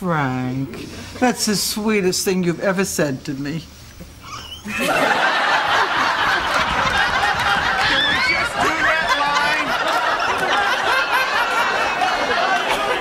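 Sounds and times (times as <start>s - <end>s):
audience laughing: 4.6s - 13.0s.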